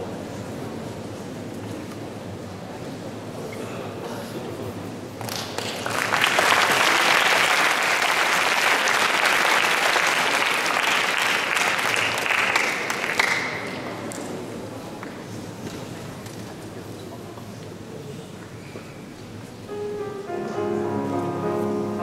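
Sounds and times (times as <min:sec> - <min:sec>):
audience applause: 0:05.3 - 0:14.0.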